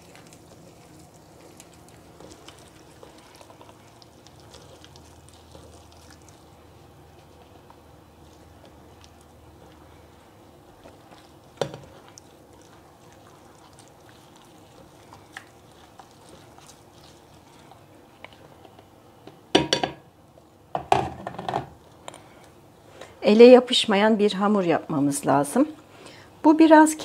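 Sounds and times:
hand kneading dough: 0.0s - 18.9s
knocks and clatter of bowls: 19.6s - 20.0s, 20.8s - 21.8s.

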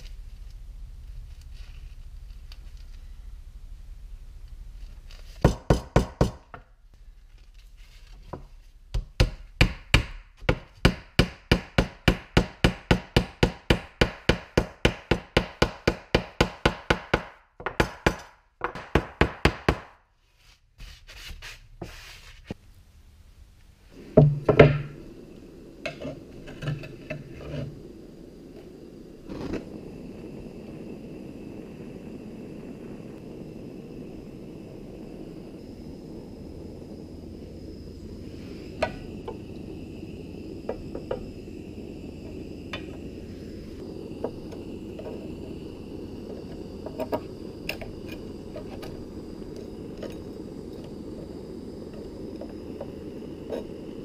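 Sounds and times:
blowtorch flame hissing: 8.3s - 20.0s, 23.8s - 54.0s.

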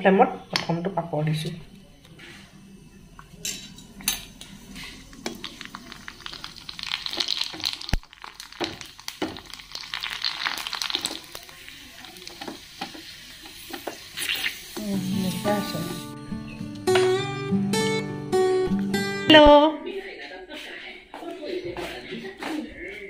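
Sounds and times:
food sizzling in hot oil: 3.4s - 16.2s.

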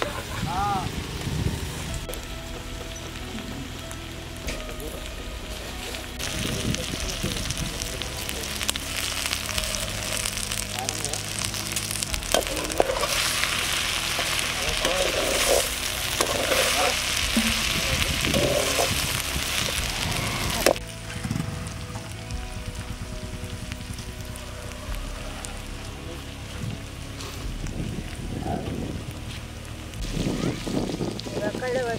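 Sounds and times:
okra sizzling in a pan: 0.0s - 31.9s
metal skimmer scraping a pan: 12.2s - 17.6s.

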